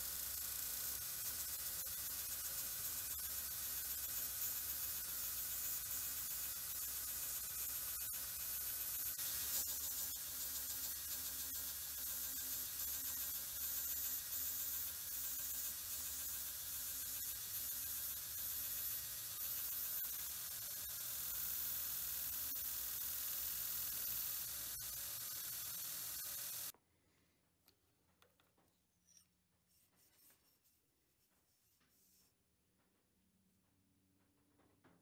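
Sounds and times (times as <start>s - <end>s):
grinding belt hissing on steel: 0.0s - 26.7s.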